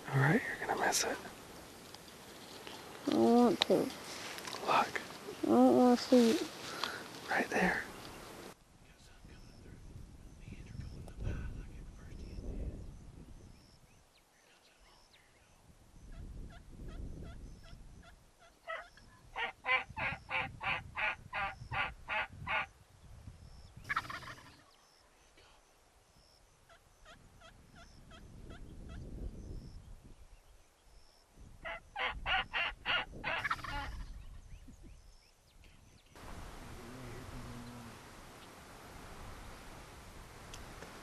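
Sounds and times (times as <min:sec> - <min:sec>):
turkey calling: 0:18.4 - 0:22.6, 0:23.9 - 0:24.7, 0:31.6 - 0:34.1
turkey gobble: 0:18.4 - 0:22.6, 0:23.9 - 0:24.6, 0:31.6 - 0:34.1.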